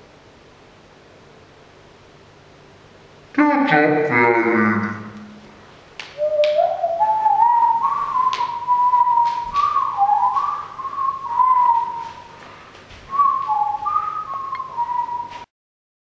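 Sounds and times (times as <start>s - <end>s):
person whistling a slow tune: 6.2s - 12.4s, 13.1s - 15.5s.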